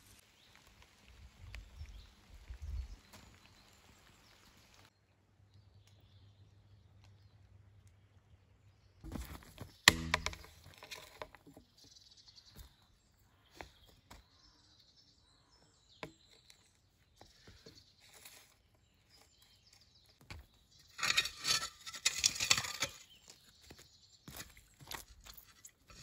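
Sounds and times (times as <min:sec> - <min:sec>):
hand tools scraping dirt: 0:09.1 - 0:11.7, 0:20.4 - 0:26.0
loud scraping and rustling: 0:20.8 - 0:23.3, 0:25.3 - 0:26.0.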